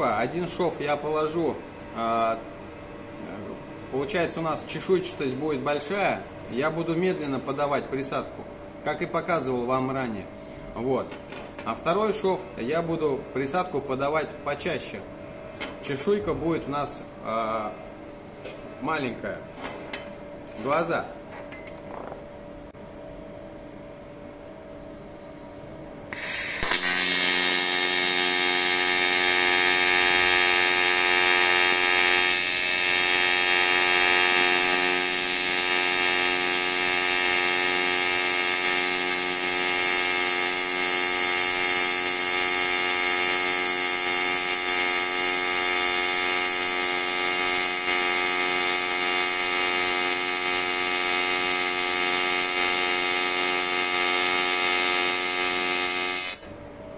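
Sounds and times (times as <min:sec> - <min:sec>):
welding arc buzzing: 0:26.1 - 0:56.6
welding arc striking hiss: 0:26.1 - 0:56.6.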